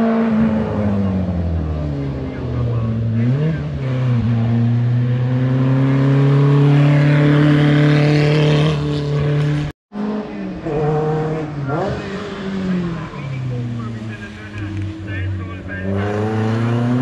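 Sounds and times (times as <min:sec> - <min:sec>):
racing car engine: 0:00.0 - 0:17.0.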